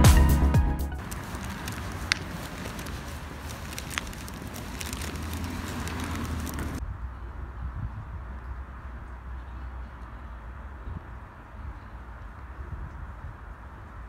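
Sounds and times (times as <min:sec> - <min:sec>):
outdoor background noise: 0:00.9 - 0:14.0
footsteps on pavement: 0:01.0 - 0:06.8
shopping bags rustling: 0:01.0 - 0:06.8.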